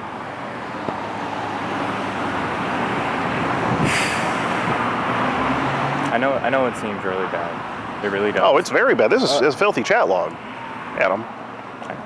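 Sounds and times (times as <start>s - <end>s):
motor vehicle passing: 1.0s - 11.2s
short hiss: 3.8s - 4.6s.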